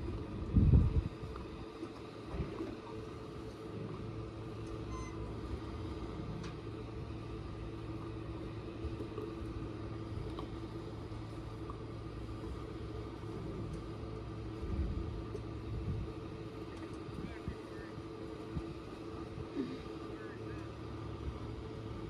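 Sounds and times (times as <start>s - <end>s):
boat motor humming: 0.0s - 22.0s.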